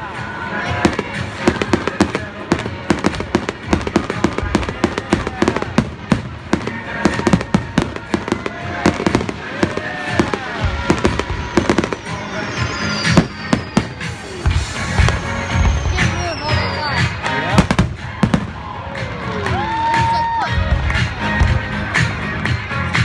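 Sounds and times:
fireworks bangs and crackles: 0.0 - 23.0
fireworks whistles falling in pitch: 6.9 - 17.8.

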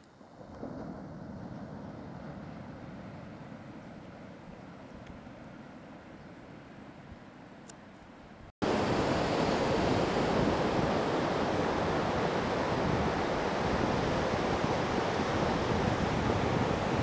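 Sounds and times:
ocean surf: 0.0 - 7.4, 8.6 - 17.0
wind buffeting microphone: 8.3 - 17.0.

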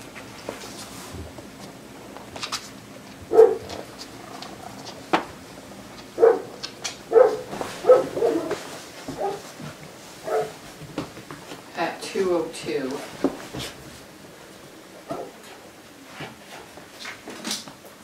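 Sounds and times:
puppy yipping and barking: 6.2 - 8.5.

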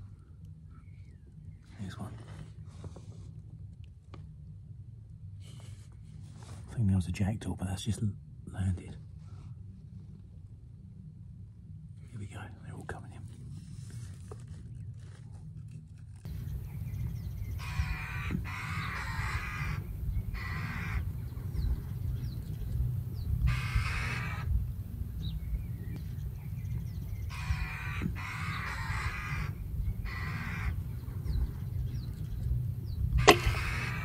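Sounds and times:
crows cawing: 16.3 - 25.7, 26.4 - 34.0
low rumble: 16.3 - 34.0
air rifle shot: 33.1 - 34.0.

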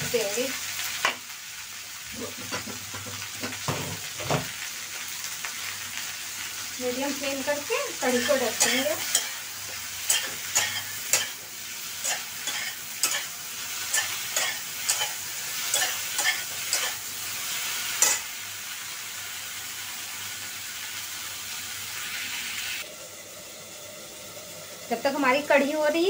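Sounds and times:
okra sizzling in oil: 0.0 - 26.0
spatula scraping metal pan: 8.0 - 9.4, 12.0 - 13.3.

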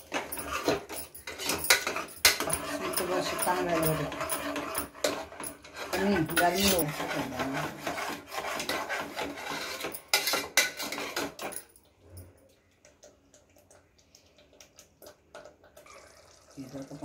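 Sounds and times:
ladle scraping a pot: 0.0 - 11.6.

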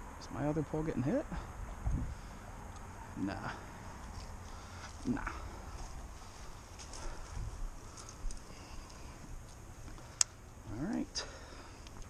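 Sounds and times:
wind rumble on microphone: 1.4 - 3.1, 5.7 - 9.5
footsteps through dry grass: 3.6 - 10.2
faint light clicks: 8.0 - 11.0.

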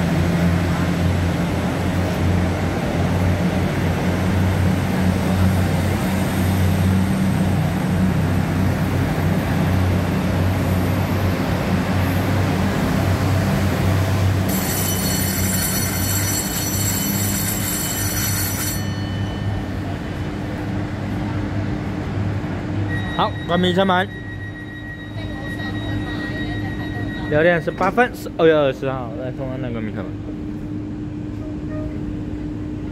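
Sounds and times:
train equipment humming: 0.1 - 32.9
high electronic ringing tone: 14.5 - 20.4, 22.8 - 28.5.

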